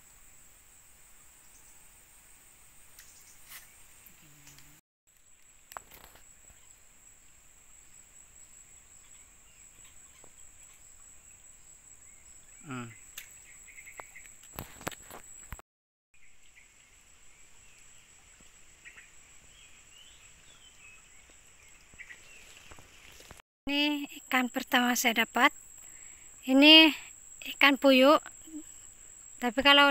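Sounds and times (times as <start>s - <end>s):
high-pitched insect drone: 12.4s - 13.0s.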